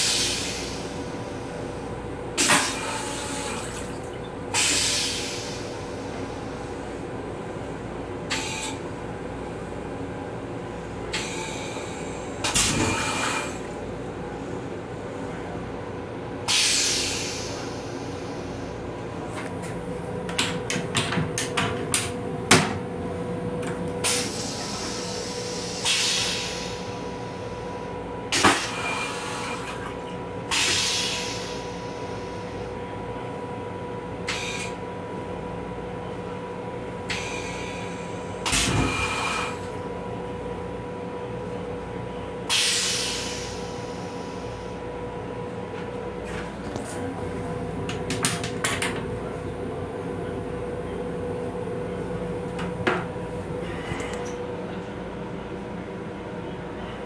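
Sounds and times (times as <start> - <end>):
railcar hum: 0.0 - 57.0
toilet flushing: 2.4 - 5.5.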